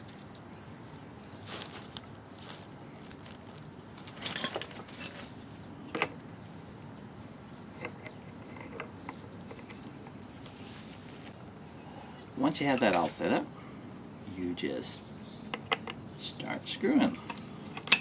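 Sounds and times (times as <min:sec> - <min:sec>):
metal tool clinks and rattles: 0:02.4 - 0:06.9, 0:07.6 - 0:10.2, 0:17.2 - 0:18.0.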